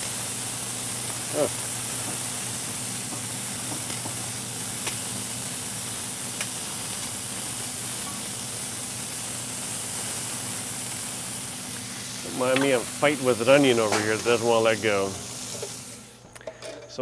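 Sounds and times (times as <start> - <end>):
meat and onions sizzling on griddle: 0.0 - 16.2
tongs clicking against griddle: 3.1 - 4.2, 4.8 - 5.1, 6.3 - 6.6.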